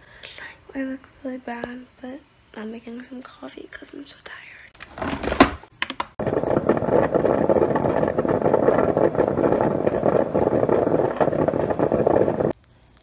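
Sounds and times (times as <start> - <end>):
coffee running into carafe: 6.2 - 12.6.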